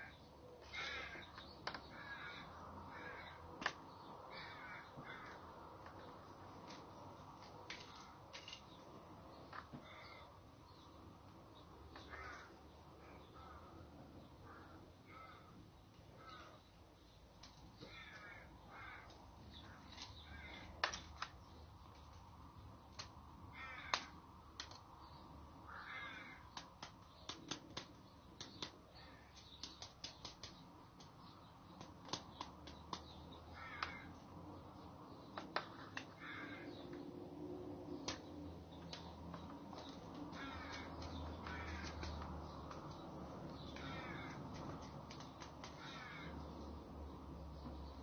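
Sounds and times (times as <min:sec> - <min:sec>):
crows cawing: 0:00.0 - 0:06.1, 0:09.6 - 0:10.5, 0:11.9 - 0:16.6, 0:17.8 - 0:21.3, 0:23.0 - 0:24.8, 0:25.6 - 0:29.6, 0:32.1 - 0:37.1, 0:38.0 - 0:46.8.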